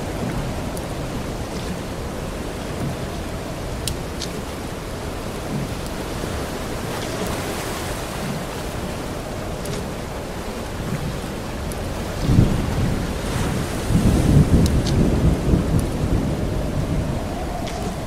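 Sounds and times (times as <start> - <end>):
rushing water: 0.0 - 18.0
deep rumble: 8.2 - 18.0
faint sharp ticks: 17.6 - 18.0.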